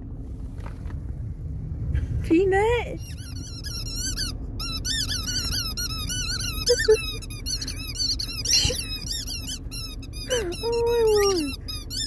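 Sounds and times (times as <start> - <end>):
squeaky toy squeaking: 3.0 - 12.0.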